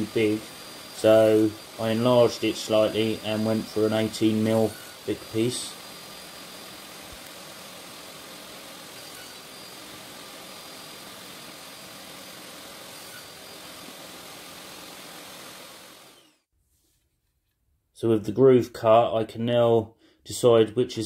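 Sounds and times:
machine motor humming: 0:00.0 - 0:16.4.

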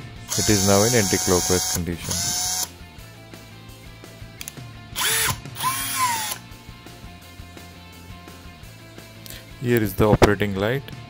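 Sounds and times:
impact drill motor whine: 0:00.3 - 0:02.7, 0:05.0 - 0:06.4.

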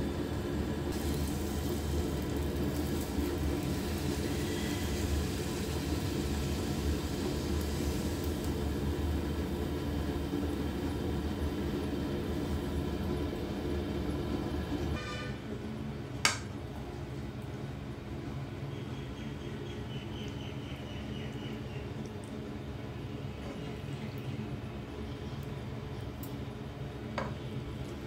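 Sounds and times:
food sizzling in hot oil: 0:00.2 - 0:15.3.

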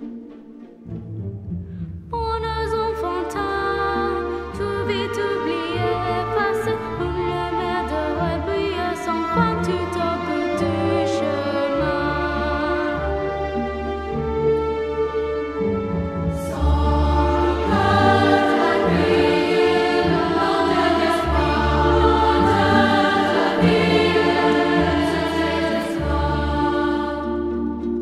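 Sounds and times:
low orchestral bass line: 0:00.0 - 0:28.0
choir singing sustained chords: 0:16.3 - 0:28.0.

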